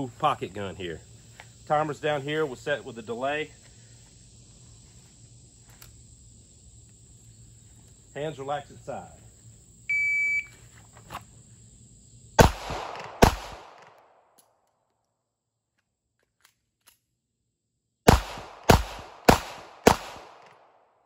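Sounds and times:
shot timer beep: 0:09.9 - 0:10.5
pistol shots: 0:12.4 - 0:14.0, 0:18.1 - 0:20.7.

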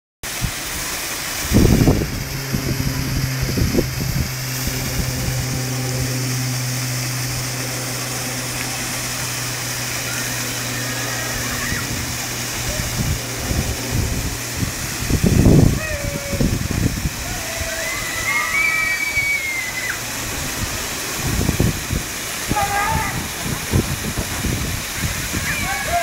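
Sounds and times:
low electric hum of machinery: 0:00.3 - 0:26.0
low buffeting thumps: 0:23.1 - 0:25.1.

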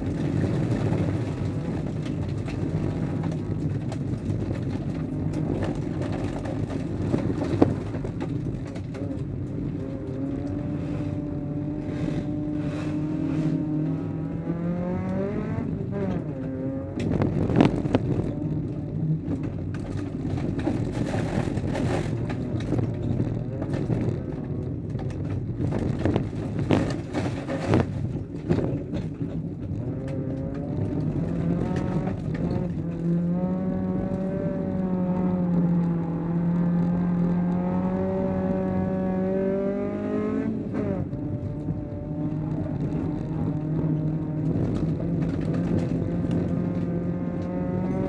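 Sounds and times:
car engine racing: 0:00.0 - 0:48.0
car body knocks and rattles: 0:17.0 - 0:33.0.

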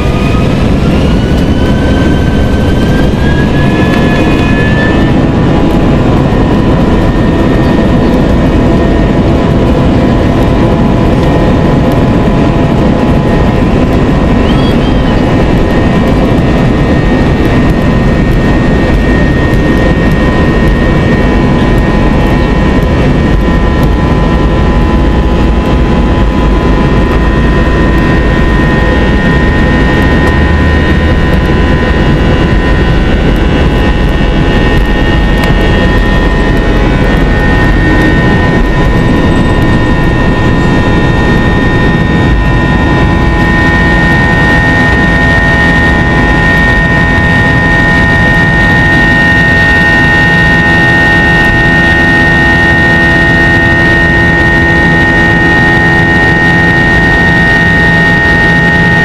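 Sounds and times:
jet engines roaring with whine: 0:00.0 - 0:59.0
runway rumble: 0:00.0 - 0:59.0.

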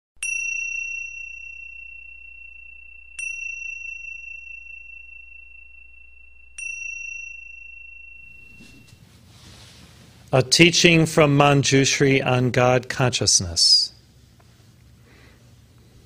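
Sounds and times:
small high-pitched bell ringing: 0:00.2 - 0:09.0.

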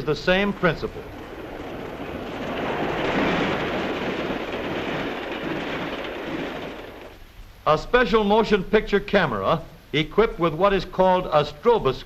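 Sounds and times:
steam train rushing past: 0:00.0 - 0:07.2.

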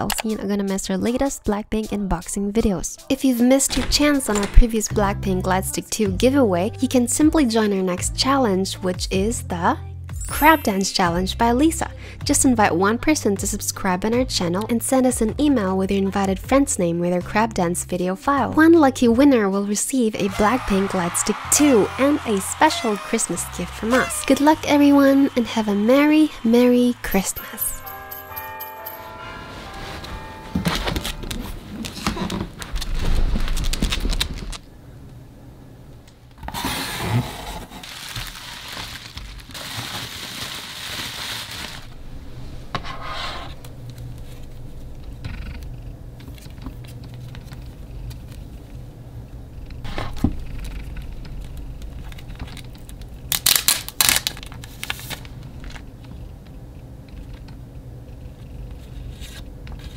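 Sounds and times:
cardboard and plastic rustling: 0:30.6 - 0:34.6, 0:36.5 - 0:42.0, 0:50.6 - 0:55.9
packaging tearing: 0:32.7 - 0:34.6, 0:36.6 - 0:41.9, 0:52.0 - 0:55.3.

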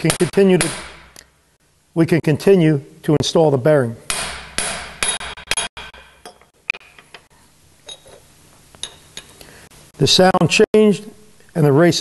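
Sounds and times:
hammer striking steel: 0:00.0 - 0:01.2, 0:04.1 - 0:06.5.

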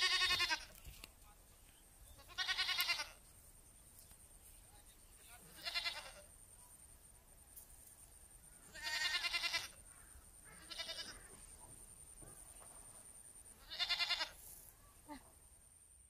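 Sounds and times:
goat bleating: 0:00.0 - 0:00.8, 0:02.2 - 0:03.2, 0:05.5 - 0:06.3, 0:08.7 - 0:09.8, 0:10.5 - 0:11.2, 0:13.6 - 0:14.4.

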